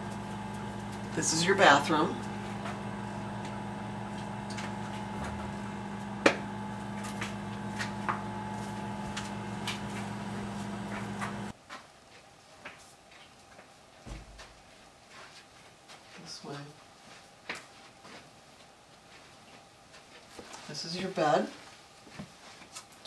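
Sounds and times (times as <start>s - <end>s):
machine hum: 0.0s - 11.5s.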